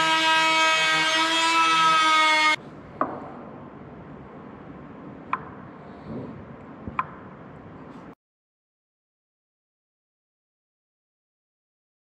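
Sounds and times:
router whining: 0.0 - 2.6.

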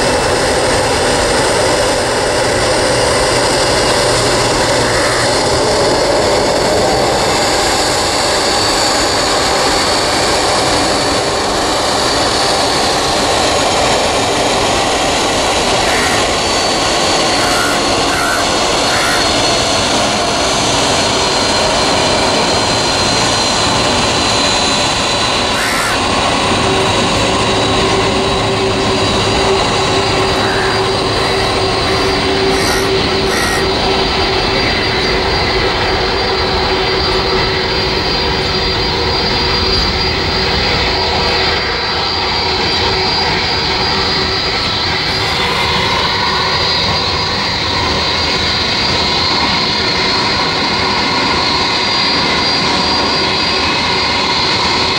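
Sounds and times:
jet engines roaring and whining: 0.0 - 54.9.

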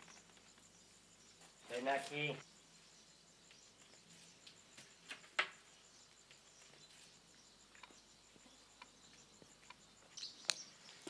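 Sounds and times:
faint clicks and ticks: 7.7 - 10.7.

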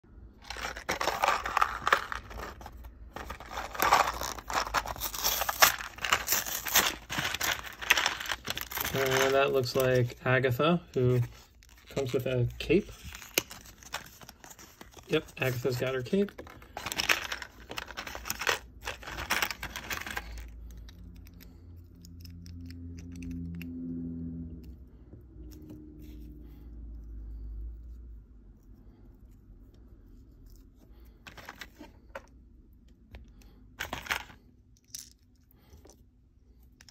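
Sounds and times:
cardboard box rustling: 0.4 - 10.0, 12.8 - 20.4
paper packaging tearing and crinkling: 0.4 - 10.2, 11.0 - 20.5.

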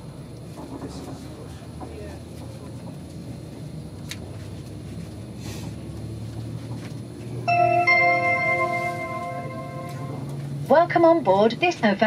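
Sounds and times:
two-tone electronic chime: 7.5 - 10.3.

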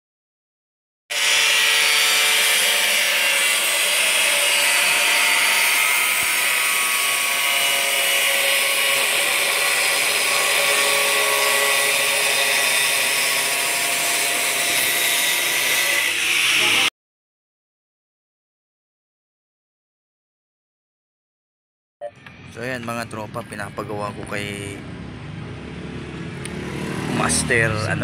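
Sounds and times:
angle grinder cutting sheet metal: 1.1 - 16.9.

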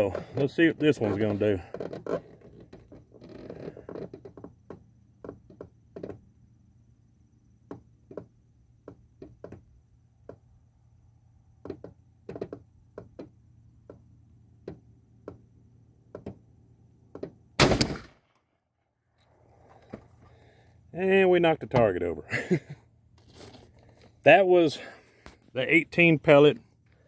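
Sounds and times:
shotgun blast: 17.6 - 18.3.

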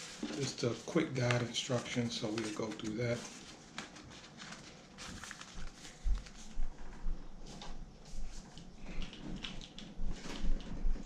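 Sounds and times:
paper rustling: 0.0 - 7.0.

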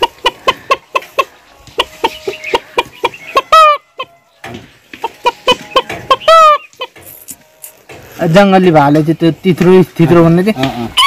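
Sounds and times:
person imitating hen clucking: 0.0 - 4.1.

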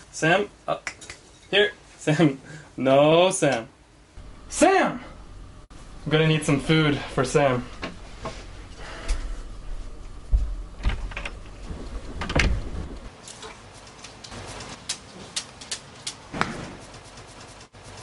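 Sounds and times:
heavy thumps: 7.7 - 13.1.

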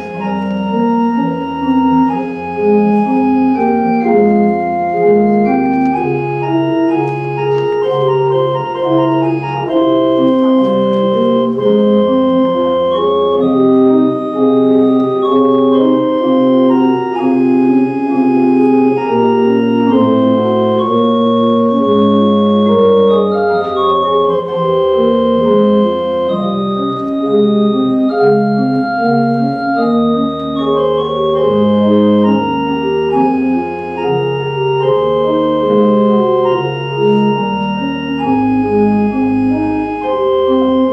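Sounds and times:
organ playing slow chords: 0.0 - 40.9.

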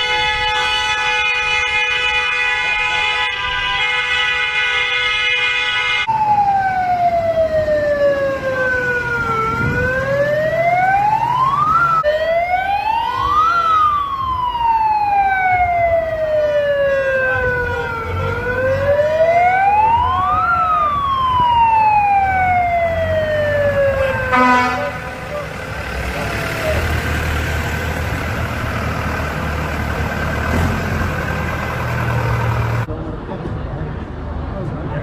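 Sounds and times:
siren wailing: 5.9 - 32.6
low rumble of vehicles: 6.0 - 35.0.

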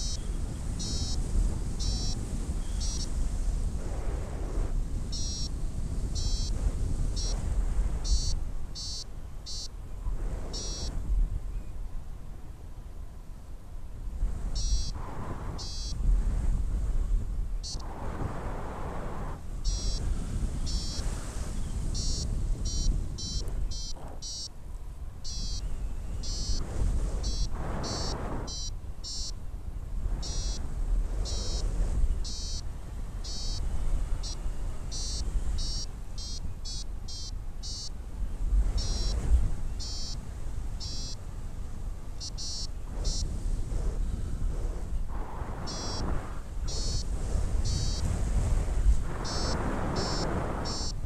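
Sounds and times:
rapid high pulsing beeps: 0.0 - 0.2, 0.8 - 1.2, 1.8 - 2.2, 2.8 - 3.1, 5.1 - 5.5, 6.2 - 6.5, 7.2 - 7.4, 8.0 - 9.7, 10.6 - 10.9, 14.6 - 15.0, 15.6 - 16.0, 17.6 - 17.8, 19.6 - 20.0, 20.7 - 21.0, 21.9 - 24.5, 25.2 - 25.6, 26.2 - 26.6, 27.2 - 29.4, 30.2 - 30.6, 32.2 - 32.6, 33.2 - 33.6, 34.2 - 37.9, 38.8 - 39.2, 39.8 - 40.2, 40.8 - 41.2, 42.2 - 43.2, 45.7 - 46.0, 46.7 - 48.0, 49.2 - 51.0
wind noise on microphone: 0.0 - 51.0.

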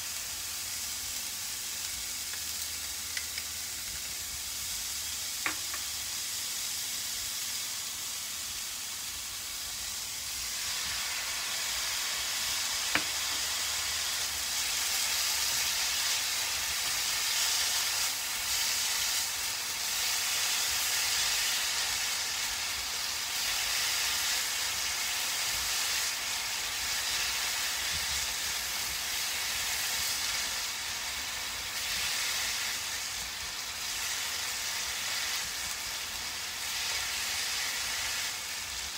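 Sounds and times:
vegetables sizzling in a frying pan: 0.0 - 38.9.

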